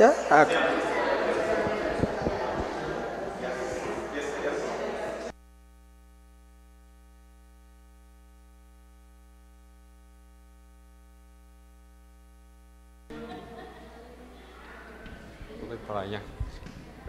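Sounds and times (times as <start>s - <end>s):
electrical hum: 0.0s - 17.0s.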